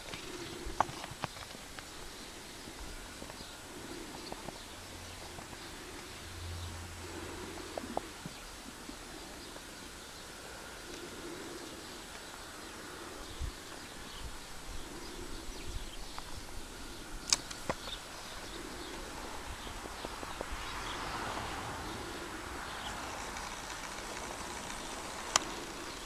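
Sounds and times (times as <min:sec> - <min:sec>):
low steady hiss: 0:00.0 - 0:26.0
sharp click: 0:17.2 - 0:18.0.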